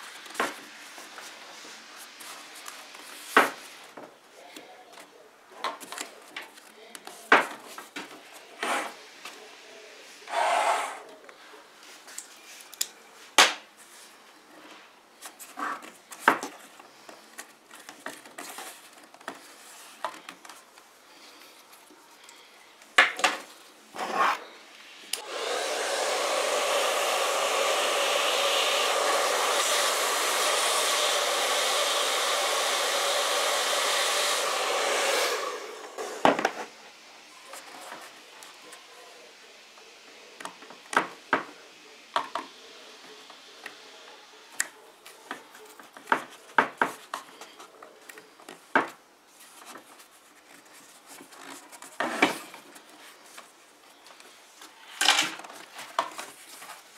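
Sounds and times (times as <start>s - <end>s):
hot-air blower whirring: 10.3s - 11.1s, 25.0s - 36.5s.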